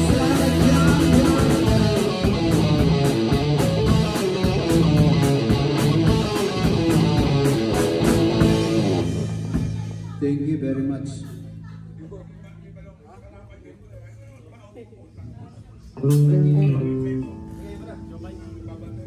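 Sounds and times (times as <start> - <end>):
rock band playing: 0.0 - 10.2, 16.0 - 19.0.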